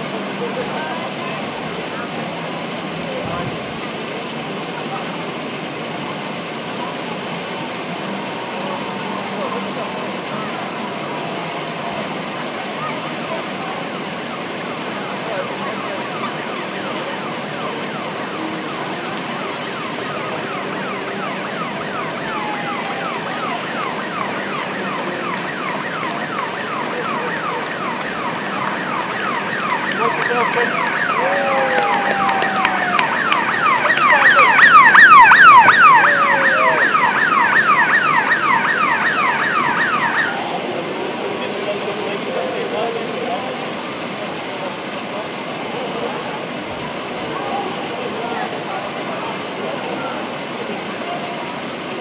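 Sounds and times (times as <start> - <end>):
electronic siren wailing: 14.3 - 42.6.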